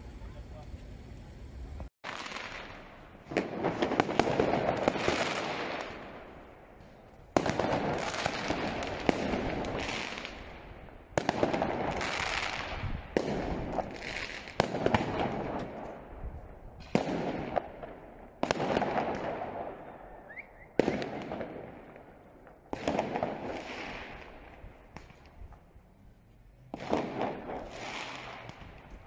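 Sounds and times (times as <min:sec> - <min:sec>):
firework mortars bursting: 0:00.0 - 0:29.0
fireworks crackling and hissing: 0:00.0 - 0:29.0.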